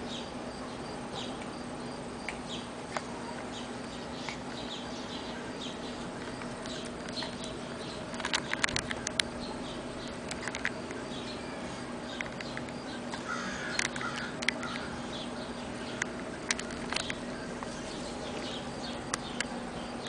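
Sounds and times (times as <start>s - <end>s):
small birds chirping: 0.0s - 20.0s
steady low hum: 0.0s - 20.0s
sharp clicks: 6.2s - 11.1s, 12.1s - 14.9s, 15.9s - 17.7s.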